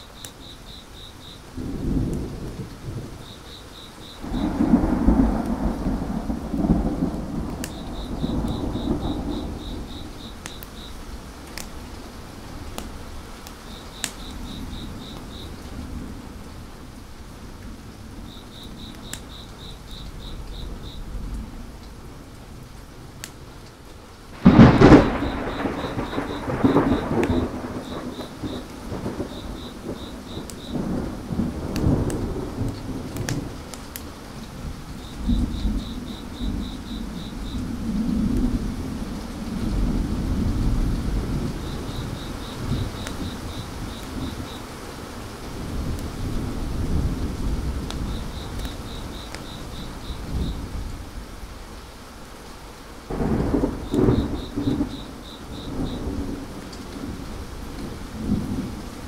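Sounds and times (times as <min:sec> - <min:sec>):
wood fire crackling: 0:00.0 - 0:40.3
crickets chirping: 0:00.0 - 0:59.0
steady rain: 0:00.0 - 0:59.0
rolling thunder: 0:01.5 - 0:03.4, 0:04.1 - 0:11.4, 0:24.3 - 0:33.7, 0:34.4 - 0:44.6, 0:45.5 - 0:51.5, 0:53.1 - 0:59.0
sharp thunder clap: 0:04.2 - 0:10.6, 0:24.4 - 0:33.6, 0:53.1 - 0:57.2.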